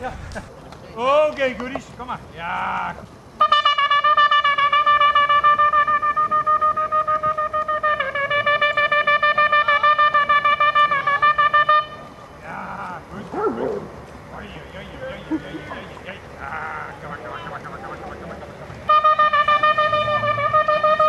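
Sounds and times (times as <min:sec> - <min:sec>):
hunting horn long pulsed note: 0:18.9 - 0:21.0.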